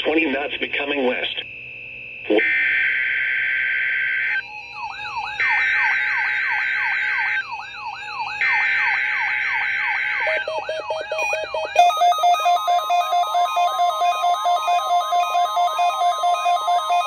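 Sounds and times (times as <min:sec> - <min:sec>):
rising and falling alert siren: 0:02.3 - 0:17.0
digital data tone bursts: 0:08.1 - 0:17.0.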